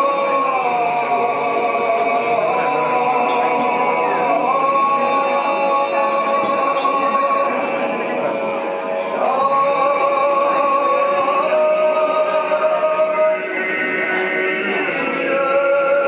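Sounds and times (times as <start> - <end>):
choir singing a chant: 0.0 - 16.0.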